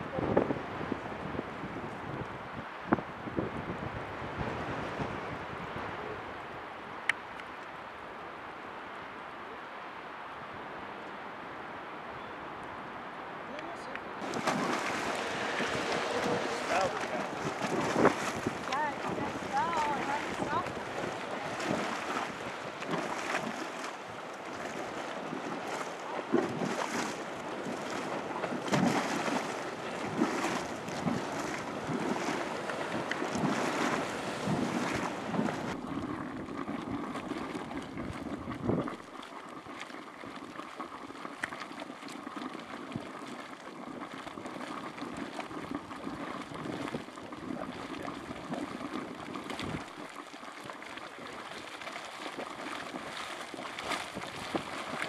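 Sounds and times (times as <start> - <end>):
wind on microphone: 0.0 - 7.0, 14.2 - 41.4, 42.2 - 50.1, 52.4 - 55.0
hot spring water boiling: 0.0 - 55.0
geyser vent gurgling: 13.5 - 55.0.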